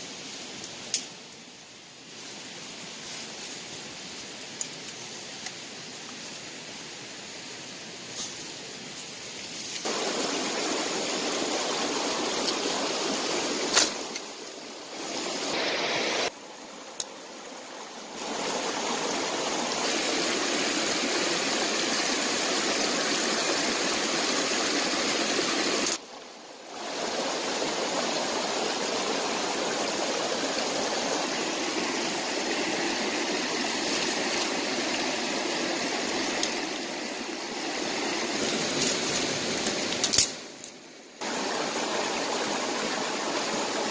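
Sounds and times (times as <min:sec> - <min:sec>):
stream rushing over stones: 0:09.8 - 0:40.6, 0:41.2 - 0:43.9.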